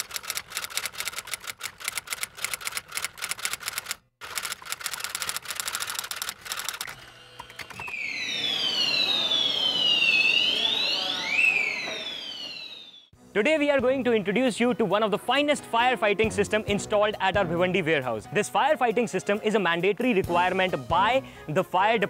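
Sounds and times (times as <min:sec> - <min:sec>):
typewriter keystrokes clacking: 0:00.0 - 0:06.9
siren-like effect gliding: 0:07.1 - 0:13.1.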